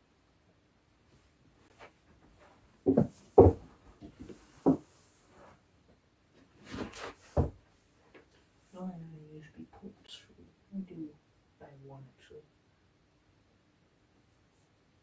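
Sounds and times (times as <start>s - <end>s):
handling knocks and thumps: 2.2s - 4.9s, 6.7s - 7.6s.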